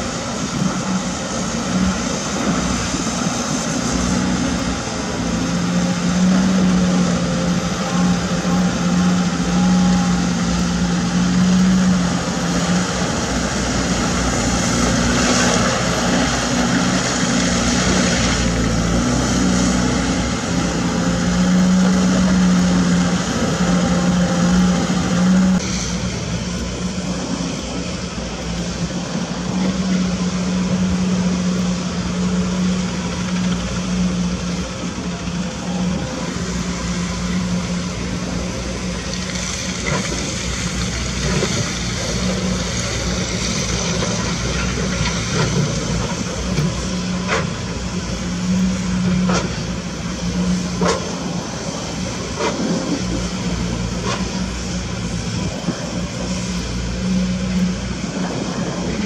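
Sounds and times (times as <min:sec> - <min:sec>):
excavator diesel engine running: 0:00.0 - 0:59.0
hydraulic and mechanical noise: 0:00.0 - 0:59.0.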